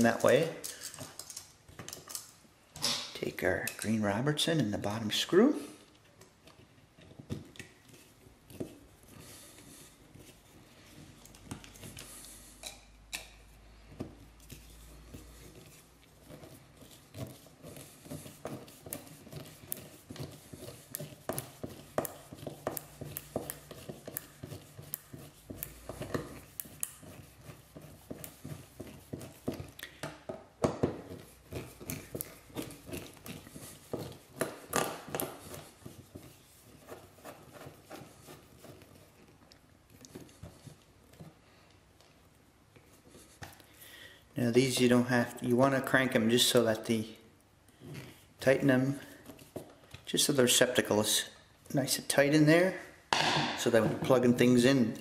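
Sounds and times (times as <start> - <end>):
screwdriver metal clicks and scrapes: 0.0 - 3.0.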